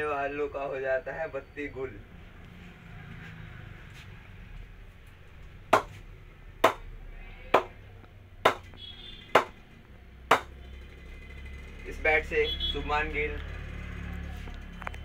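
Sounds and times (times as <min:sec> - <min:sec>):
ball bouncing on cricket bat: 0:05.8 - 0:06.0, 0:06.6 - 0:06.9, 0:07.6 - 0:07.8, 0:08.5 - 0:08.8, 0:09.4 - 0:09.6, 0:10.3 - 0:10.6.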